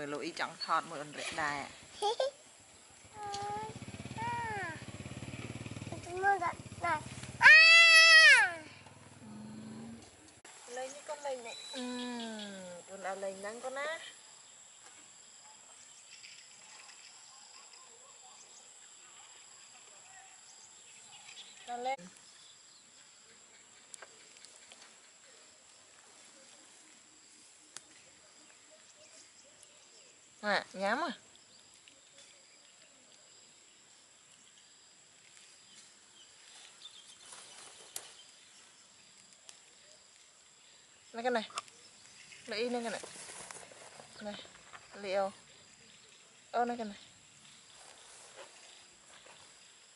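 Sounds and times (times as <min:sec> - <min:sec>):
rustling in grass: 0:35.2 - 0:40.3, 0:41.1 - 0:45.3, 0:47.4 - 0:49.9.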